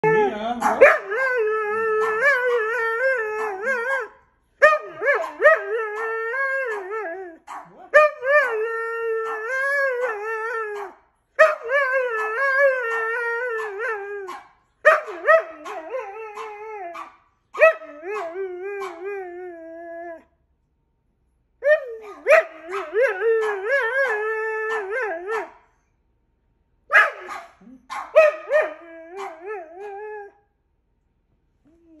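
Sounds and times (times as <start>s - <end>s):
dog howling vocalizations: 0.0s - 7.4s, 8.0s - 14.4s, 15.1s - 20.3s, 21.6s - 25.5s, 28.5s - 30.4s.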